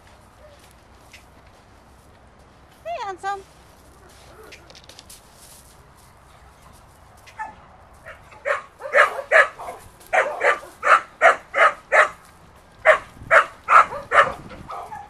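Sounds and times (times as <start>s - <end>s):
dog barking: 7.3s - 12.2s, 12.8s - 15.0s.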